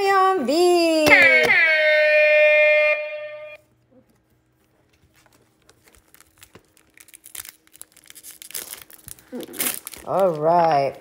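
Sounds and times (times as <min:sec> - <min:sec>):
held high-pitched tone: 0:01.0 - 0:03.6
foil pack crinkling: 0:04.9 - 0:10.9.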